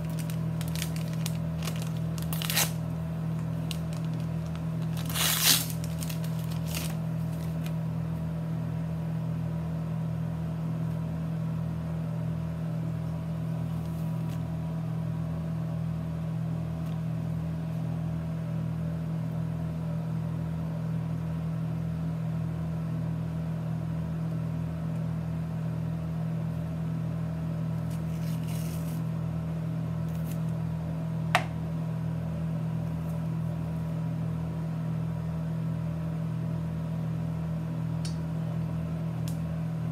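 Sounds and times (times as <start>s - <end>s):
paper wrapper rustling: 0.0s - 2.8s, 3.4s - 7.7s, 27.9s - 29.1s
low machine hum: 0.0s - 39.9s.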